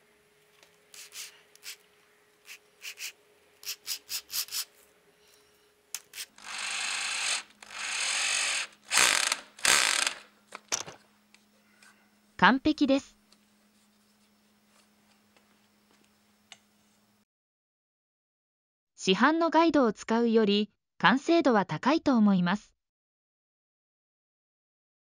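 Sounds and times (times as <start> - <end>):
screwdriver driving screw: 6.0 - 10.3.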